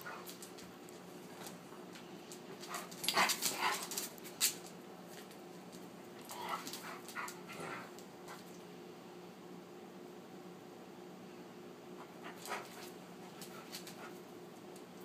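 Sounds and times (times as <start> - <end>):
dogs play noises: 0.0 - 8.6, 12.0 - 14.9
faint steady hum: 0.0 - 15.0.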